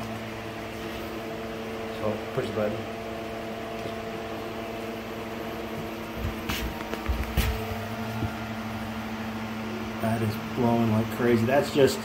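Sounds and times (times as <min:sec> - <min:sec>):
fan humming: 0:00.0 - 0:12.0
short bumps: 0:05.8 - 0:08.4.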